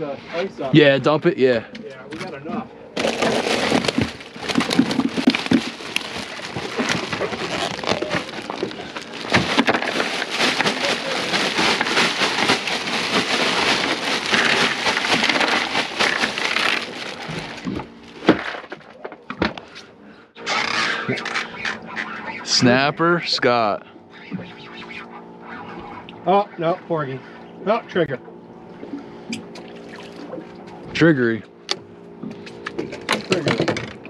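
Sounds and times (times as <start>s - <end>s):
ice cubes rattling: 3.0s - 17.8s
plastic bag crinkling: 3.0s - 18.6s.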